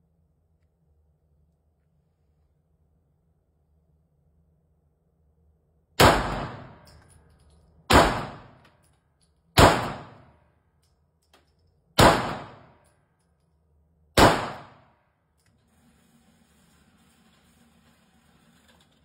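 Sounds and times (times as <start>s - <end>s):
pistol shots indoors: 6.0s - 13.3s, 14.1s - 15.2s.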